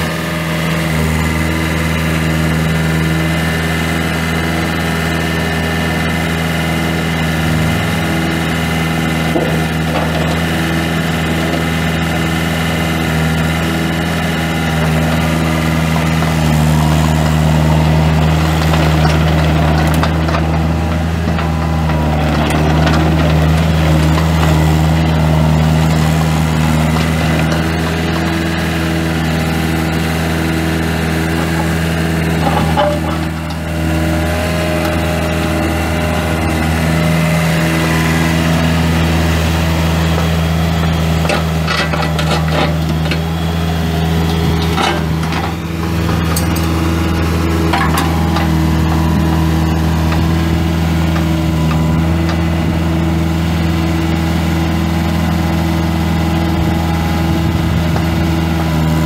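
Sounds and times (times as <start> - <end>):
diesel engine running: 0.0 - 59.0
knocks and clanks: 9.3 - 10.5, 31.3 - 33.6, 41.2 - 43.2, 47.7 - 50.3.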